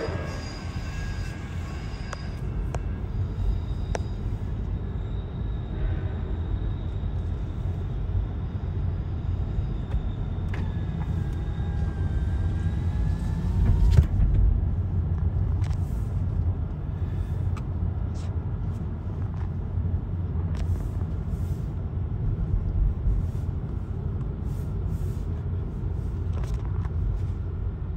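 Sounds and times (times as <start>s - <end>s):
faint high squeal: 0.0s - 14.2s
train rumbling: 0.0s - 27.9s.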